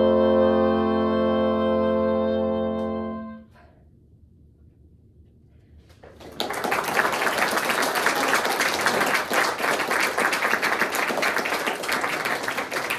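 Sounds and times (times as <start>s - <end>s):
audience applause: 6.0s - 12.9s.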